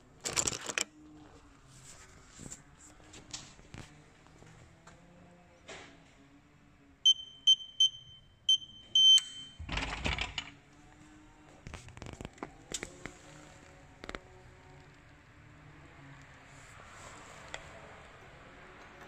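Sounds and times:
keypad lock beeping: 0:07.1 - 0:09.6
lock rattling: 0:09.7 - 0:10.6.

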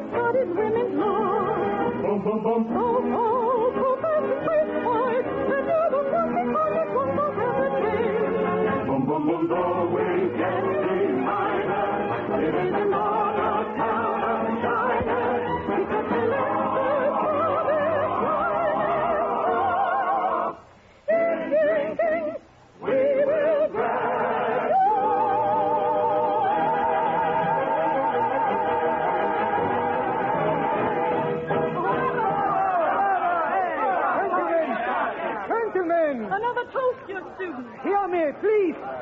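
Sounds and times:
soprano singing: 0:00.0 - 0:34.3.

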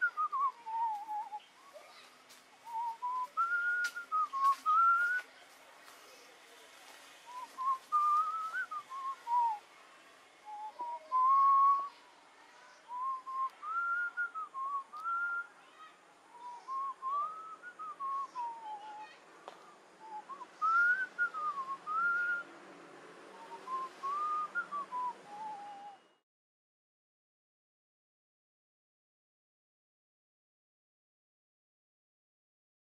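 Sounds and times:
man whistling a tune: 0:02.7 - 0:05.2, 0:07.3 - 0:09.6, 0:20.0 - 0:22.4, 0:23.4 - 0:26.2.

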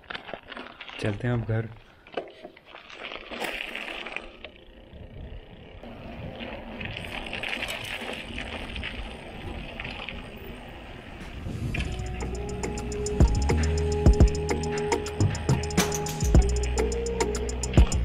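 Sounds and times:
tyres crunching on gravel: 0:00.0 - 0:04.6
bike frame and chain rattling: 0:00.0 - 0:10.6.

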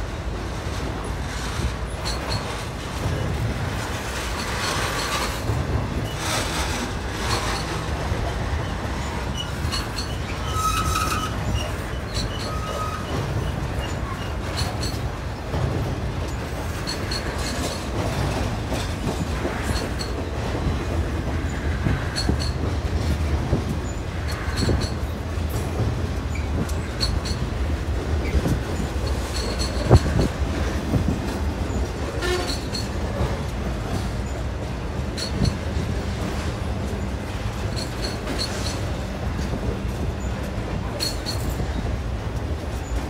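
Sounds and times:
freight train rolling past: 0:00.0 - 0:43.0
wheels clicking over rail joints: 0:00.0 - 0:43.0
high wheel squeals: 0:08.6 - 0:15.0.

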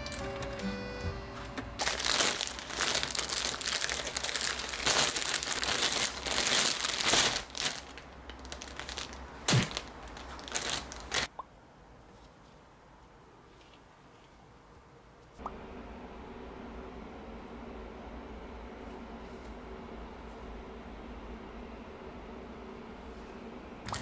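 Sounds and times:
crinkling handling noise: 0:00.0 - 0:11.3.

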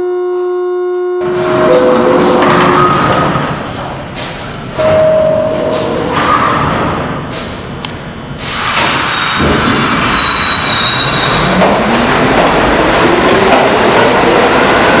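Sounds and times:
rising train whine: 0:00.0 - 0:15.0
high-pitched squeal: 0:01.2 - 0:04.2, 0:08.4 - 0:11.7
subway train pulling out: 0:01.2 - 0:15.0.

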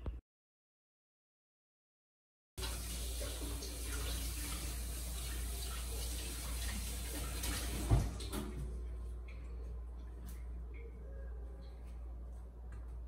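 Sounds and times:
running water from tap: 0:02.6 - 0:08.7.

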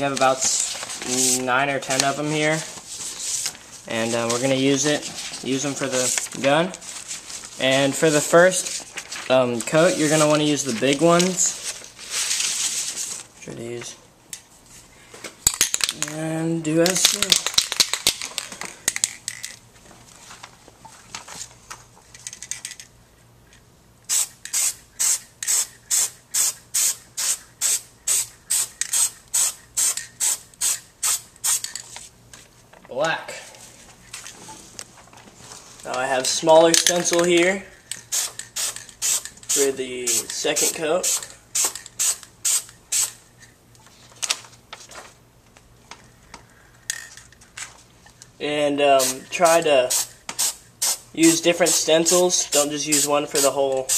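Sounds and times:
spray paint can bursts: 0:24.1 - 0:31.7, 0:49.9 - 0:51.0.

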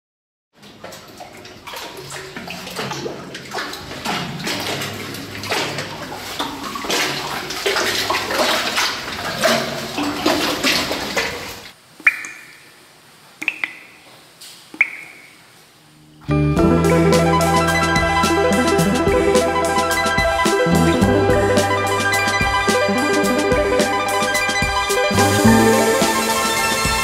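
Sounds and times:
water splashing from wading: 0:00.6 - 0:12.7
water drips plinking: 0:00.6 - 0:12.8, 0:13.4 - 0:14.1, 0:14.7 - 0:15.4.

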